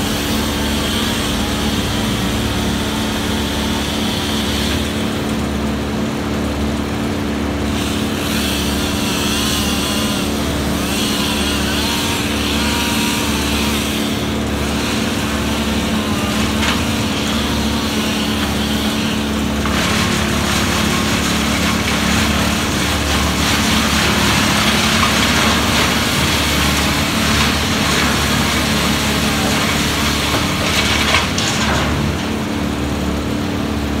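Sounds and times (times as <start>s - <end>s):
wood chipper engine running: 0.0s - 34.0s
branches being shredded: 14.6s - 32.4s.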